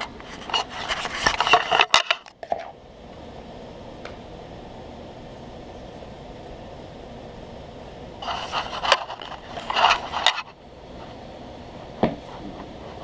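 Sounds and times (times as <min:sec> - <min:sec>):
crinkly rustling and scraping: 0:00.0 - 0:02.7, 0:08.2 - 0:11.2
steady low hum: 0:00.0 - 0:13.0.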